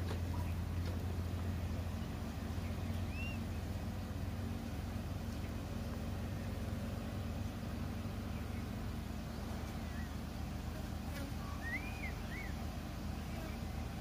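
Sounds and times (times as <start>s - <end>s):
engine idling: 0.0s - 14.0s
faint bird chirp: 1.8s - 4.2s, 5.2s - 14.0s.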